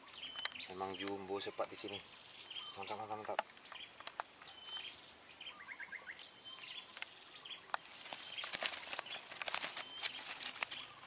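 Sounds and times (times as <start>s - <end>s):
bird chirps: 0.0s - 11.0s
high-pitched insect chorus: 0.0s - 11.0s
sharp clicks and rustling: 7.7s - 11.0s.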